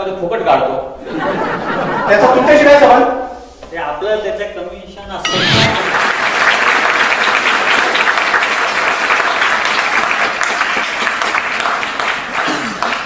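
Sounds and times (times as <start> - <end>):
audience applause: 5.8 - 13.0.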